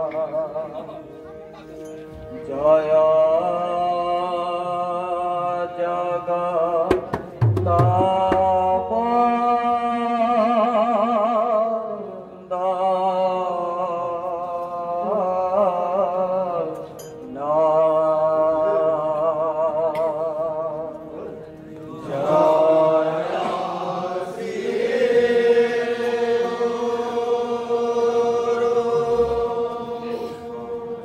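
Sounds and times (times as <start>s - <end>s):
men chanting together: 22.1s - 30.8s.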